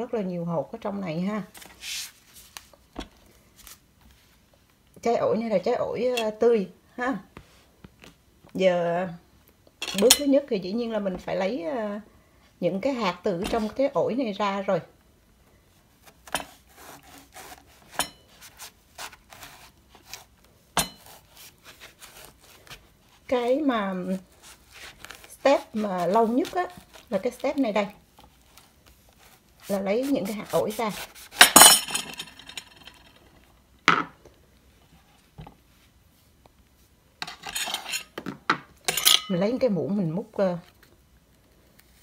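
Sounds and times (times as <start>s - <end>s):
short scraping rustle: 1.6s - 2.7s
knife cutting fruit on board: 16.0s - 23.7s, 24.4s - 27.8s, 28.5s - 31.6s.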